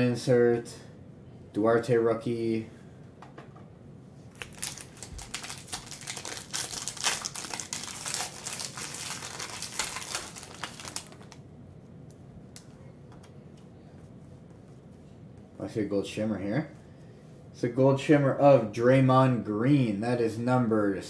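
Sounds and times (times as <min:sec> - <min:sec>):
foil wrapper tearing and crinkling: 0:04.3 - 0:11.4.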